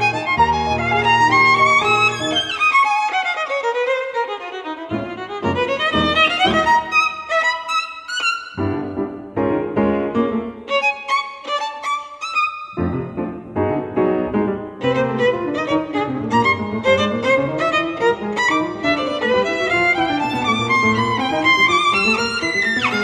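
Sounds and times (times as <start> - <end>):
violin melody: 0.0 - 23.0
grand piano chords: 8.6 - 10.8, 12.7 - 23.0.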